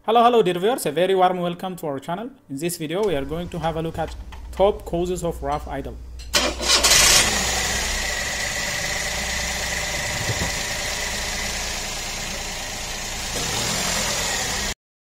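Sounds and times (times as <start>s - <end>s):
car engine starting and idling: 3.0s - 14.8s.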